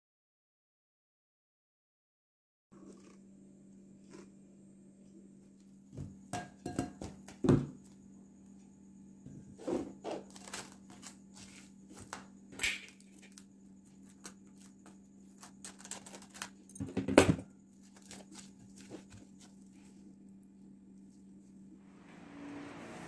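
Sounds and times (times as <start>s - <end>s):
clicks and knocks of glass bowl: 6.0s - 7.7s
low hum: 18.6s - 23.0s.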